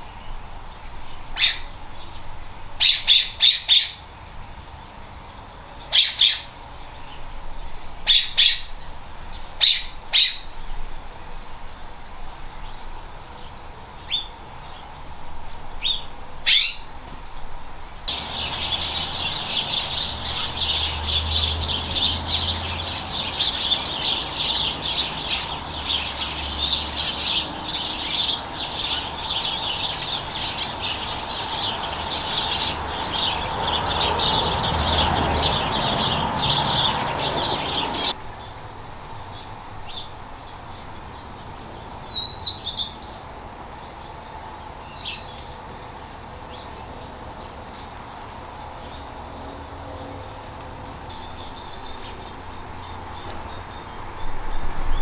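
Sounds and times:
high bird chirps: 0.0 - 4.1, 15.7 - 17.0, 39.8 - 43.4
sparrows chirping: 0.0 - 55.0.

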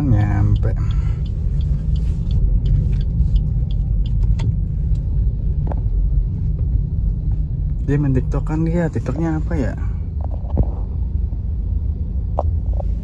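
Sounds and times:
light ticks: 0.0 - 5.1
car engine and tyres rumbling: 0.0 - 13.0.

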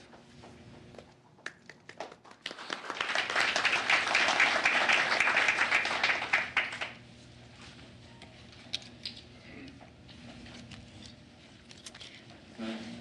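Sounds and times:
people applauding: 1.5 - 7.0.

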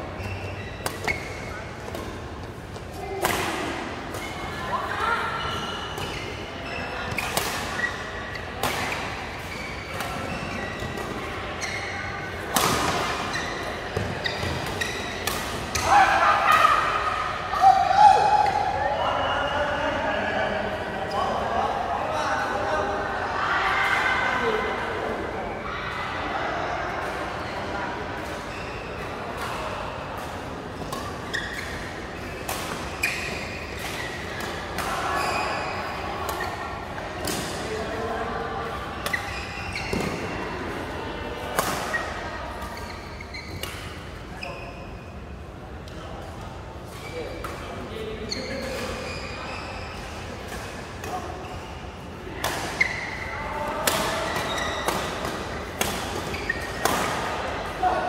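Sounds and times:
shoes squeaking on court floor: 0.1 - 3.1, 5.2 - 15.8, 28.2 - 29.6, 30.8 - 37.7, 39.0 - 40.4, 41.6 - 45.2, 46.8 - 50.2, 50.8 - 57.5
rackets hitting shuttlecock: 53.8 - 57.4.

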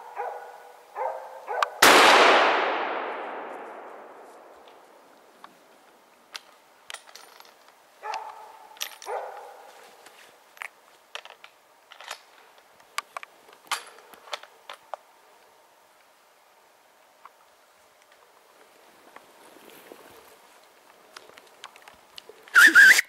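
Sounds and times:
dog barking: 0.0 - 1.8, 8.0 - 9.7
rifle shot echo: 1.8 - 4.6.

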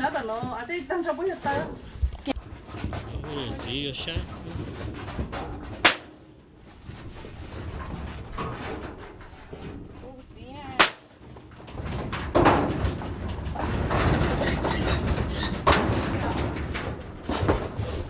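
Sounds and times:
sharp knocks: 2.6 - 7.1.

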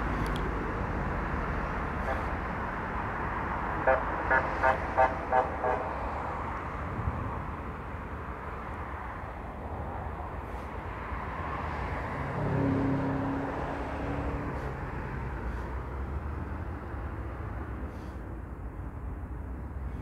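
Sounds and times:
road traffic noise: 0.0 - 20.0
motor vehicle passing: 8.5 - 18.3.

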